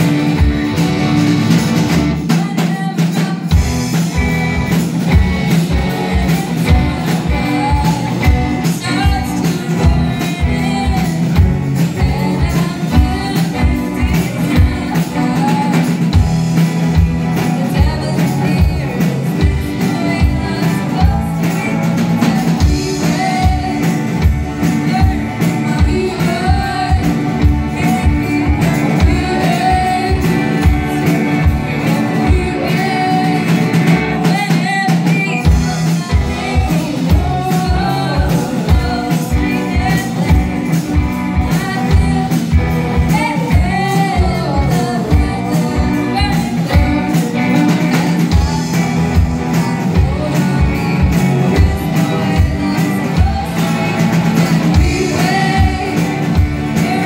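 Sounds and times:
electric bass: 0:00.0 - 0:02.4, 0:03.5 - 0:57.0
distorted electric guitar: 0:00.0 - 0:57.0
drum kit with kick drum: 0:00.0 - 0:57.0
woman singing: 0:02.1 - 0:57.0.

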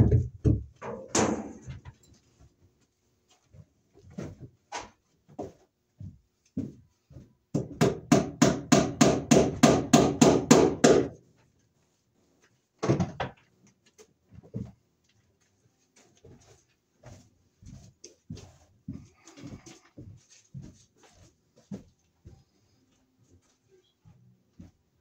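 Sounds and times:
hammer knocking staples into wood: 0:07.5 - 0:11.2.

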